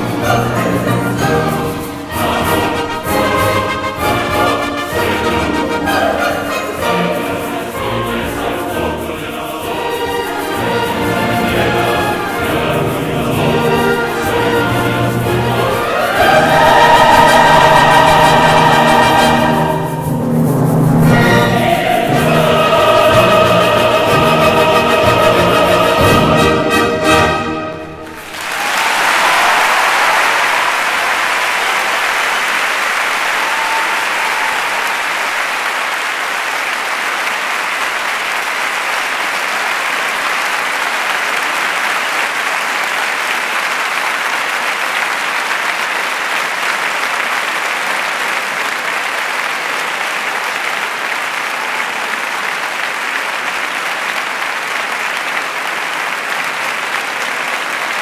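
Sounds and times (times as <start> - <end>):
audience applauding: 0.0 - 20.4, 28.0 - 58.0.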